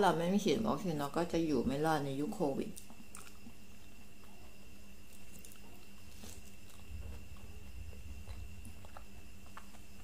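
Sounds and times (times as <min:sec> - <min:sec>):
faint background hum: 0:00.0 - 0:10.0
mouth sounds of eating: 0:02.7 - 0:10.0
low rumble: 0:06.7 - 0:10.0.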